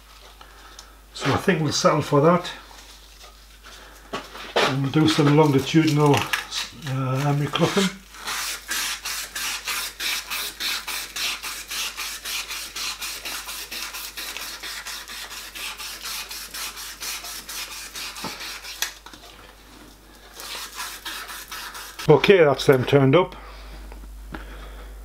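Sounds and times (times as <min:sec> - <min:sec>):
emery cloth rasping on metal rod: 0:20.4 - 0:22.1.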